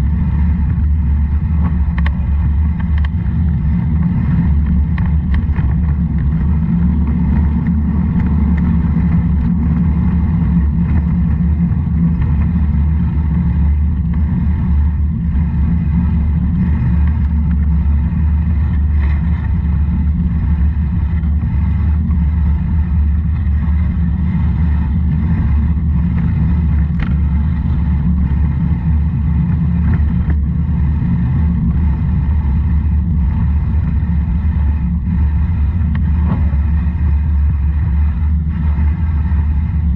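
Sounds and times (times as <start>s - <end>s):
vehicle rumbling on road: 0.0s - 39.9s
wind on microphone: 0.0s - 39.9s.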